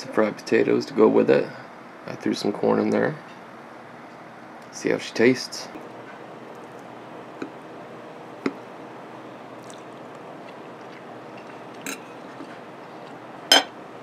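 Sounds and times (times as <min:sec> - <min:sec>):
person chewing food: 0:06.5 - 0:07.6, 0:09.6 - 0:13.3.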